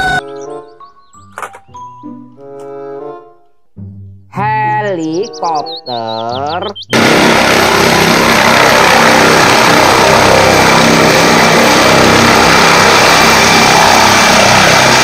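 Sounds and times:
helicopter rotor and turbine: 6.6 - 15.0.

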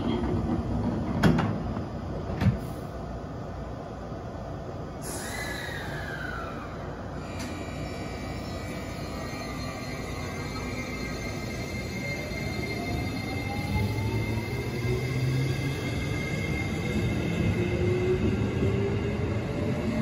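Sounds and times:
train low rumble: 0.0 - 20.0
air release hiss: 5.0 - 6.0.

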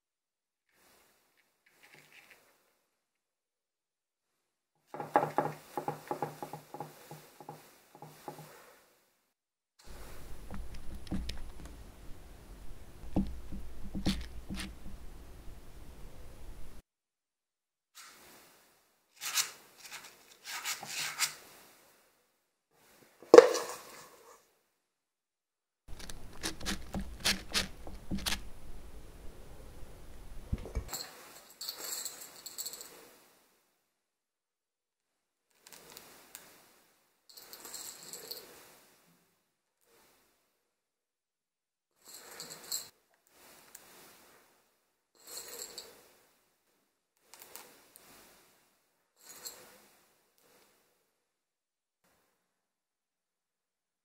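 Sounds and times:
soft crackly rustle: 0.8 - 2.8, 9.8 - 16.8
spoon tapping and scraping: 9.9 - 15.7, 25.9 - 29.4, 30.2 - 31.0
low rumbling noise: 9.9 - 16.8, 27.7 - 30.9.

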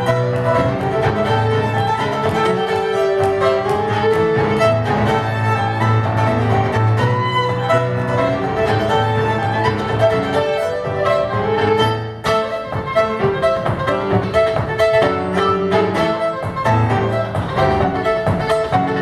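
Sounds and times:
bowed fiddle: 0.0 - 19.0
piano chords: 0.0 - 19.0.

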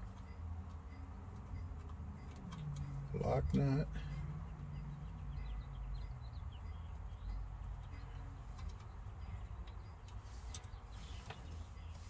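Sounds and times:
birds chirping: 3.2 - 12.0.

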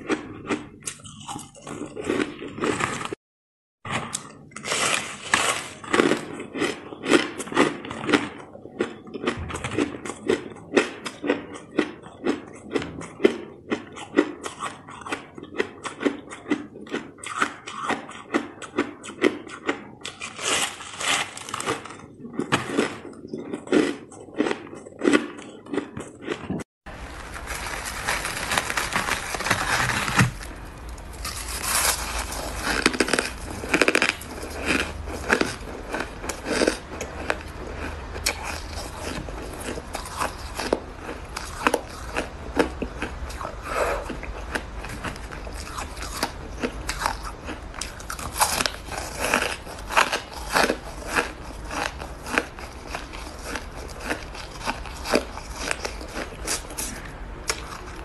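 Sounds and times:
frozen ice crumbled and scraped: 26.9 - 40.8
low hum: 26.9 - 41.0
shaved ice crunching: 26.9 - 42.2, 47.8 - 57.9.

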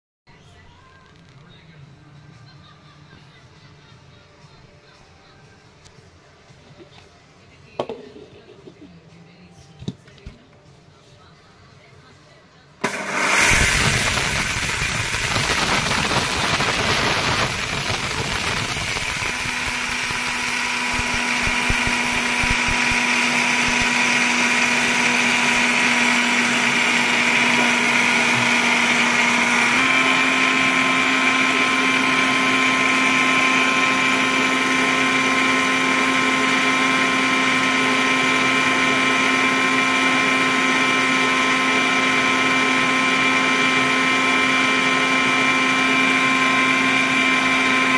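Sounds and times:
mixer grinder grinding rice: 12.8 - 47.9.

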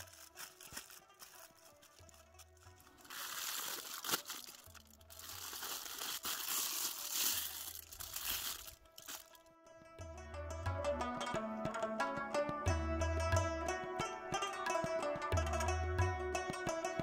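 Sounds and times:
aluminium foil crinkling: 0.0 - 9.4
quiet background music with bass: 7.2 - 17.0.

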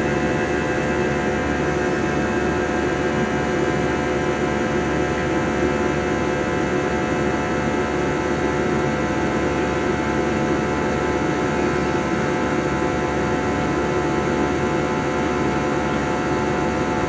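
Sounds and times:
airliner cabin drone: 0.0 - 17.0.

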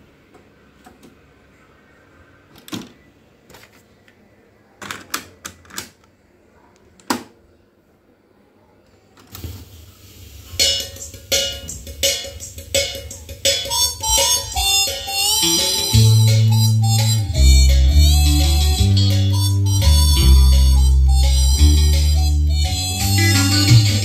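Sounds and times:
music with a regular beat: 10.6 - 24.0.

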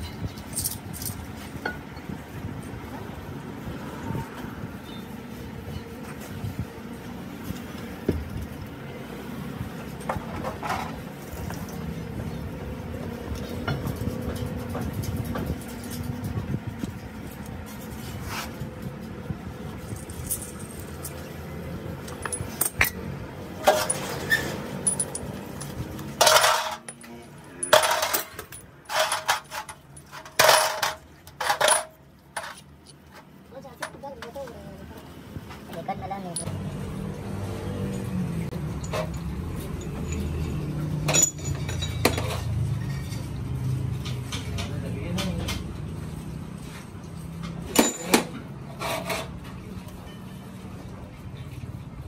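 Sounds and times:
metal parts clinking: 0.0 - 1.8, 19.8 - 34.2, 36.2 - 36.6, 38.6 - 43.4, 47.2 - 49.3.

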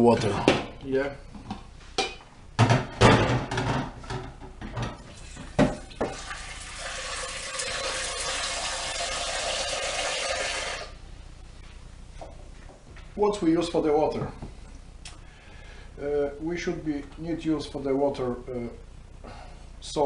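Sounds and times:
tap running into pot: 4.7 - 8.0.

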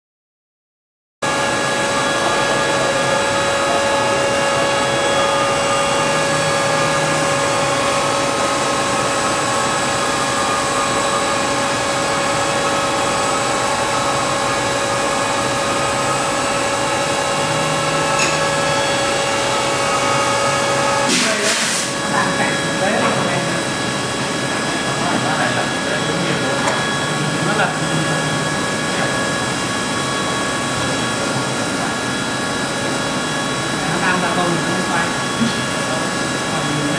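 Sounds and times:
machine whining tones: 1.2 - 36.9
coolant spraying hiss: 21.1 - 22.2.

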